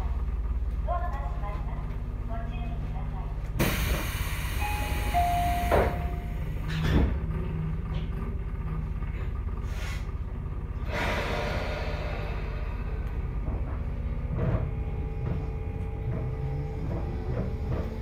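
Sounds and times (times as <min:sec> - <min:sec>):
low train equipment hum: 0:00.0 - 0:18.0
pneumatic doors hissing and thudding: 0:03.6 - 0:07.2
two-note door signal tone: 0:04.6 - 0:06.5.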